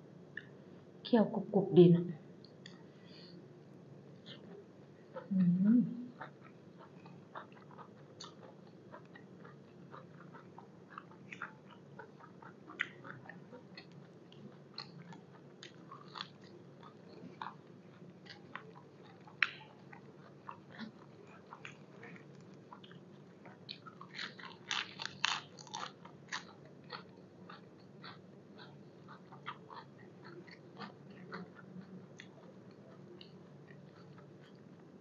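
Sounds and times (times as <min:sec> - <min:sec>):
person chewing crunchy food: 0:06.1 - 0:35.0.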